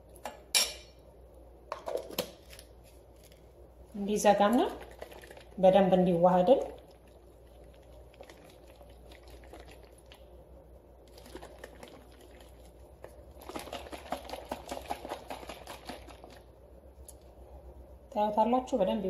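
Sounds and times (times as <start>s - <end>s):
liquid sloshing in shaken plastic tub: 4.3s - 10.2s, 11.0s - 16.5s.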